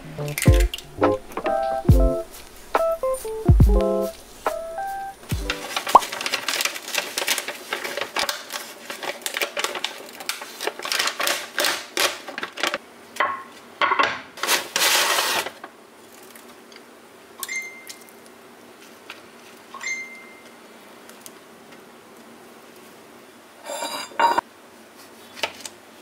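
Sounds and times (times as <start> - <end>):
paper bag rustling: 5.2 - 12.8, 14.4 - 16.6.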